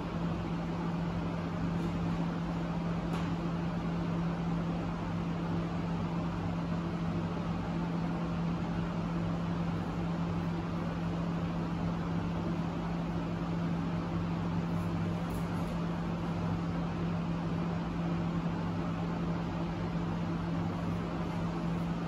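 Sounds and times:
low machine hum: 0.0s - 22.0s.

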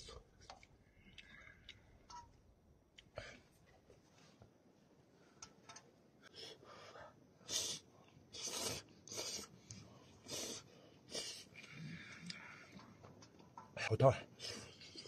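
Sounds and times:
man breathing: 6.2s - 13.0s.

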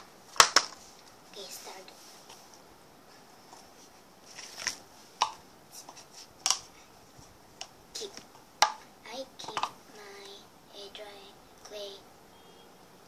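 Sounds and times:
plastic tub clicking and knocking: 9.4s - 9.8s.

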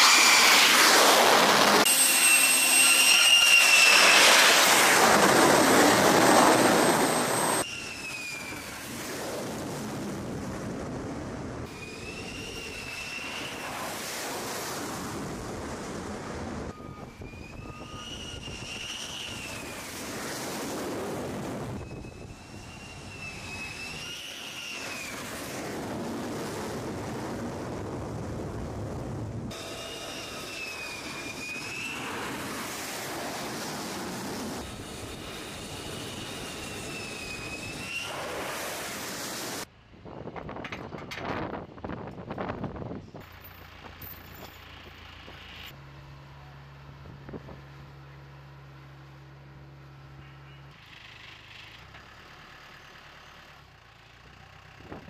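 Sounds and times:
jet engines roaring: 0.0s - 39.7s
tow tractor engine humming: 43.2s - 55.0s.

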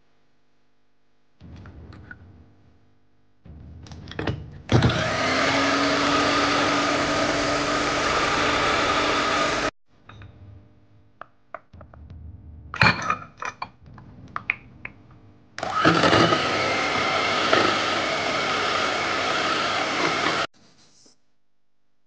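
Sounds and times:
electric hand mixer whirring: 4.7s - 9.8s, 15.6s - 20.5s.

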